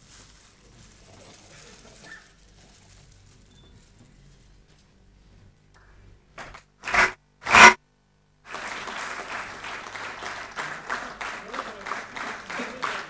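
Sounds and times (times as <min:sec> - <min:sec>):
loud short noises: 0:06.8 - 0:07.8
audience applause: 0:08.5 - 0:13.0.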